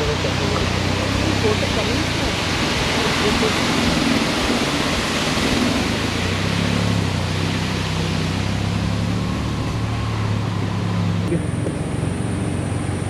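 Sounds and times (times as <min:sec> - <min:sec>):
car engine humming: 0:00.0 - 0:13.0
water rushing over a weir: 0:00.0 - 0:13.0.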